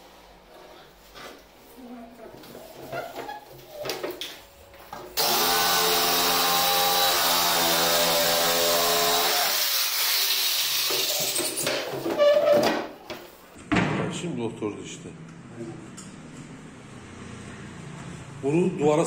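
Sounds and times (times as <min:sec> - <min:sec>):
jigsaw cutting wood: 0:05.2 - 0:11.1.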